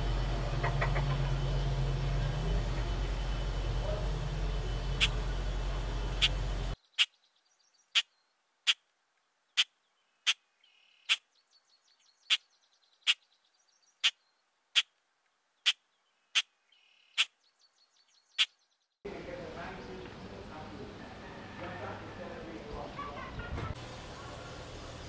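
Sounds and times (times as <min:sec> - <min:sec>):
outdoor background noise: 0:00.0 - 0:25.0
animal chirps: 0:06.2 - 0:08.8, 0:09.5 - 0:15.0, 0:15.6 - 0:18.7.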